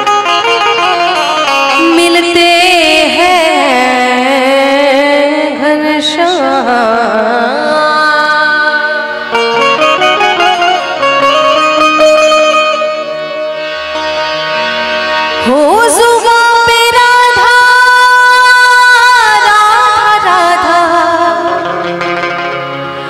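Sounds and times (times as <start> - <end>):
harmonium playing: 0.0 - 23.0
woman singing: 1.7 - 9.2, 15.4 - 21.8.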